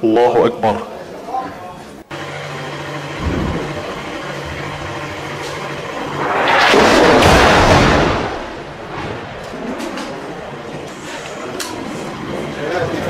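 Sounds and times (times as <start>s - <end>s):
loud rushing blast: 5.8s - 10.7s.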